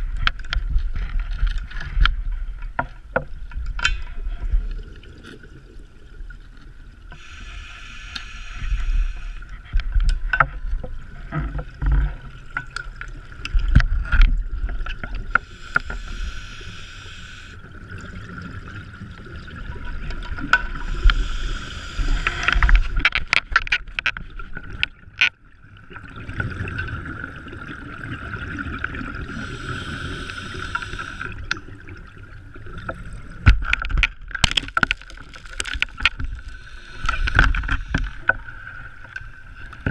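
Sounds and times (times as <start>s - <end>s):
faint steady whine: 7.0s - 10.4s, 15.1s - 17.8s, 20.6s - 23.1s, 29.3s - 31.6s
diver breathing through regulator: 7.2s - 9.5s, 15.4s - 17.6s, 20.8s - 22.7s, 29.3s - 31.4s, 36.4s - 38.3s.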